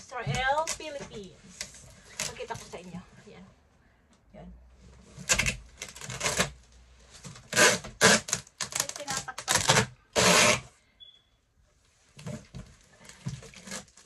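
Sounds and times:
packing tape ripping off roll: 5.2 - 6.6, 7.2 - 10.7.

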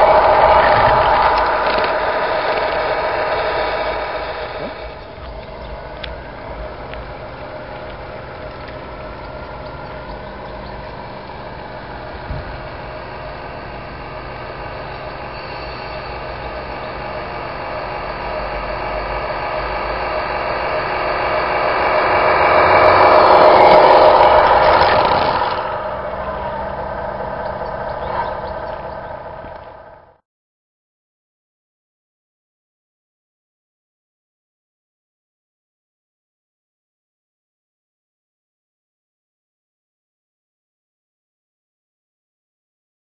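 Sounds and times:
model truck engine droning: 0.0 - 30.2.

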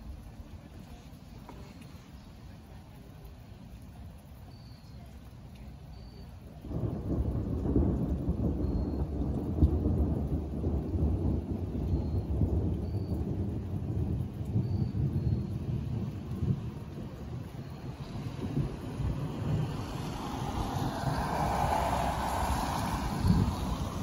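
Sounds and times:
thunder rolling: 6.6 - 24.0.

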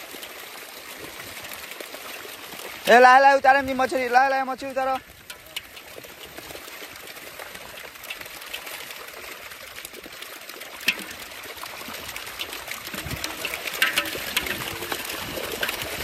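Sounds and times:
fish splashing and flapping: 0.0 - 16.0.

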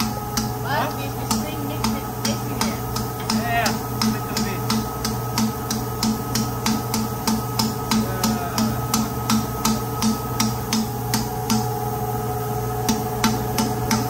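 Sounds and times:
machinery hum: 0.0 - 14.0
valve tapping on its seat: 1.2 - 11.7.

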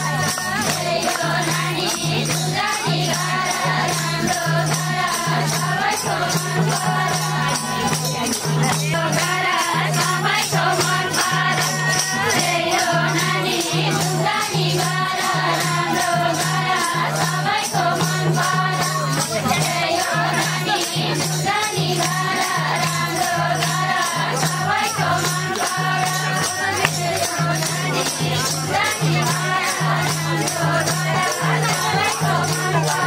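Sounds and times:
group singing: 0.0 - 33.0
shaker-like rattle: 0.0 - 33.0.

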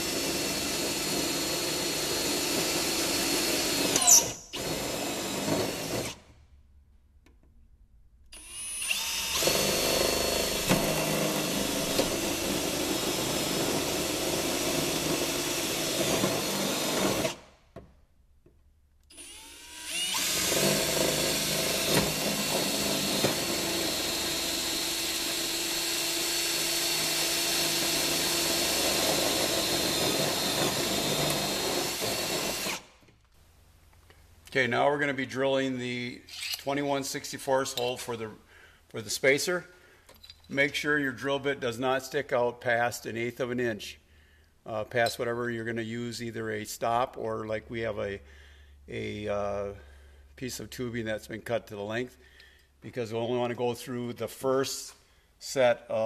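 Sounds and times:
cordless drill boring through metal: 0.0 - 6.2, 8.3 - 17.5, 19.1 - 32.9, 36.3 - 36.7
drill squeal: 3.9 - 4.6.

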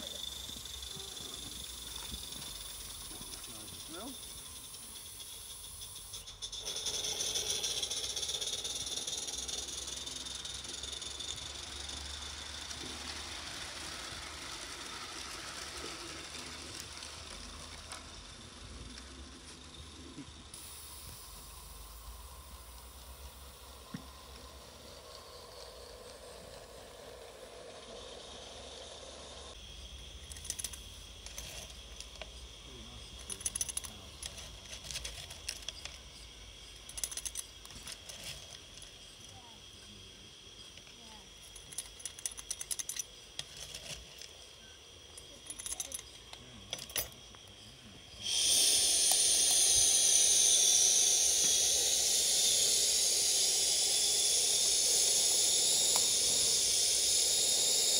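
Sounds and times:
small clinks and rattles of coal: 0.0 - 20.7, 29.8 - 39.8, 40.6 - 47.7
steam locomotive hissing: 0.0 - 57.9.

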